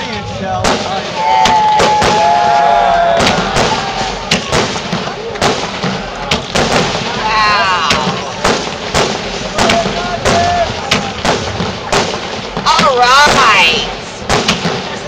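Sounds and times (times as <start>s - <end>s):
firework shells bursting: 3.1s - 15.0s.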